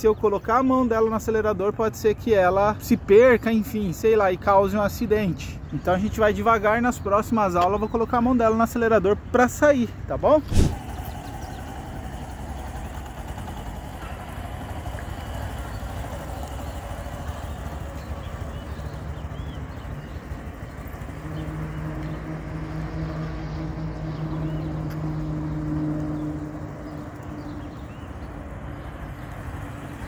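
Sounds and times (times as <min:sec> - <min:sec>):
steady hum: 0:10.4 - 0:16.2
motorcycle engine idling: 0:10.7 - 0:30.0.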